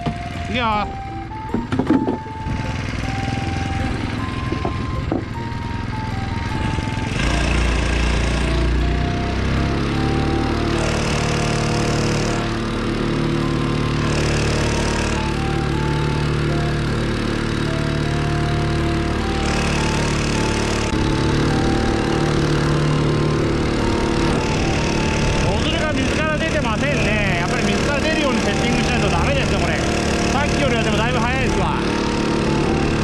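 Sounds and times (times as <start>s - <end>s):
outboard motor running: 0.0s - 33.0s.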